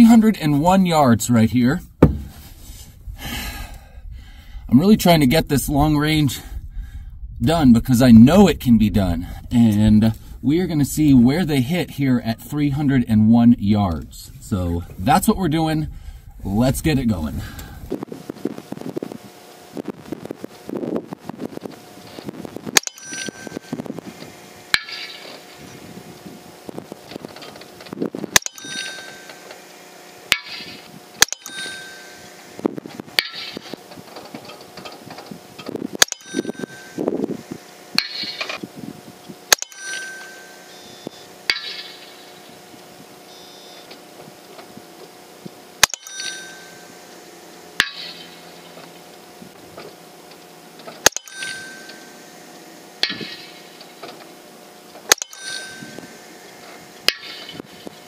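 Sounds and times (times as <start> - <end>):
steel target ringing ping: 22.8 - 23.9, 24.7 - 25.6, 28.3 - 32.6, 33.2 - 33.8, 36.0 - 37.1, 38.0 - 38.6, 39.5 - 42.7, 45.8 - 49.0, 51.0 - 53.9, 55.1 - 57.7
air rifle shots: 45.8 - 46.5, 51.0 - 51.6.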